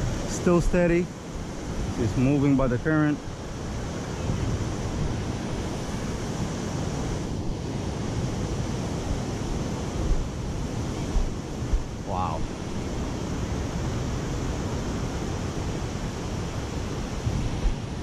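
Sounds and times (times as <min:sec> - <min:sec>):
ocean surf washing on beach: 0:00.0 - 0:18.0
wind buffeting microphone: 0:00.0 - 0:18.0.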